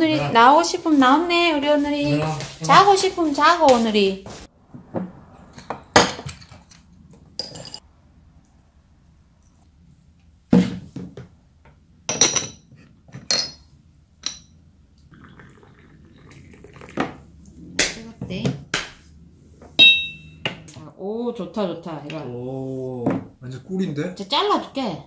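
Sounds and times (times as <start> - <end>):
ceramic cups clinking: 12.1 - 14.6, 19.8 - 20.6
hot water pouring: 15.0 - 17.6.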